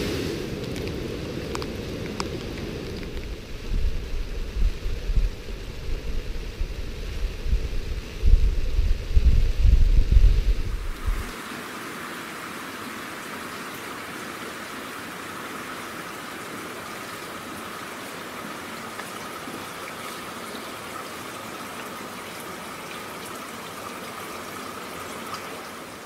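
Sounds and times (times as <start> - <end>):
rain on wet pavement: 0.0 - 6.9, 10.8 - 26.0
raindrop ticks: 0.6 - 5.3.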